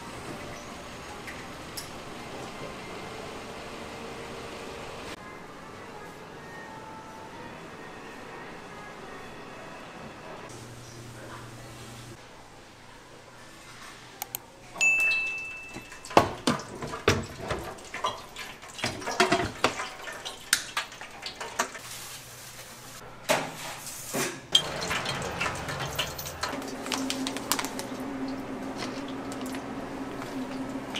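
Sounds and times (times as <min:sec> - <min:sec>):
metal utensils and dishes clinking: 0:14.8 - 0:21.9, 0:23.5 - 0:27.9.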